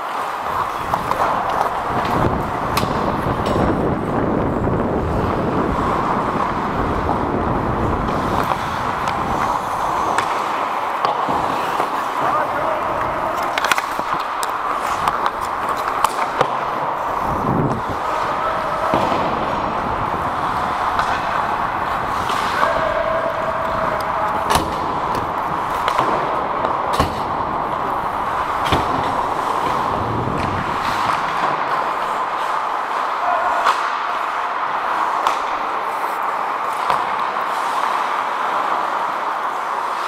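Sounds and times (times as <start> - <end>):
sticks and puck clacking: 0.0 - 40.0
skates hissing on ice: 5.1 - 22.8, 24.4 - 40.0.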